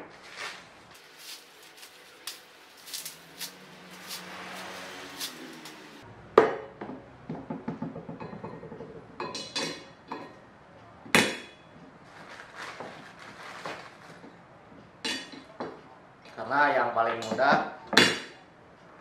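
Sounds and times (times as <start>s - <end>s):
foam packing being unwrapped: 0.0s - 6.0s, 12.1s - 14.2s.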